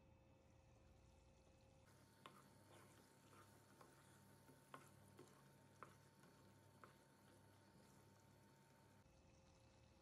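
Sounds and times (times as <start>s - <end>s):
spatula scraping frying pan: 1.9s - 8.8s.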